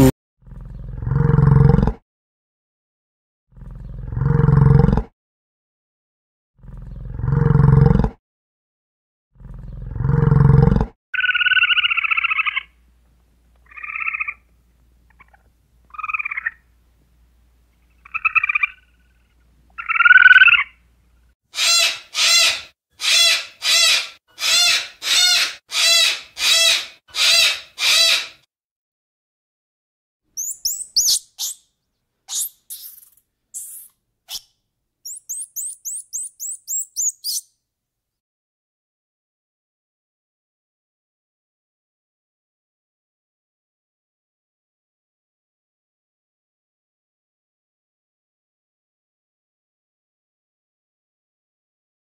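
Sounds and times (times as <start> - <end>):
deep animal roars: 0.4 - 2.0, 3.5 - 5.1, 6.6 - 8.2, 9.4 - 10.9
higher-pitched animal calls: 21.6 - 28.4, 30.4 - 31.6, 32.3 - 34.5, 35.1 - 37.4
sharp shrill animal calls: 21.6 - 28.5, 30.4 - 31.7, 32.3 - 34.5, 35.1 - 37.5.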